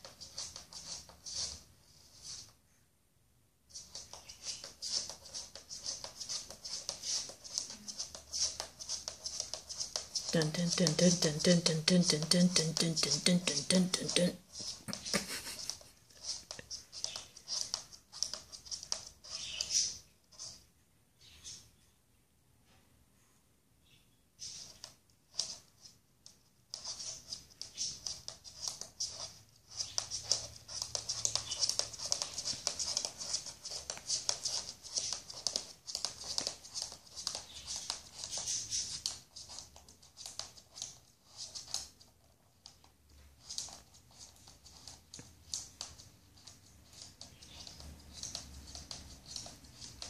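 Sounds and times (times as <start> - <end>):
tortoise claws clicking on floor: 0.0 - 1.6, 3.7 - 13.7, 14.5 - 20.6, 24.4 - 50.0.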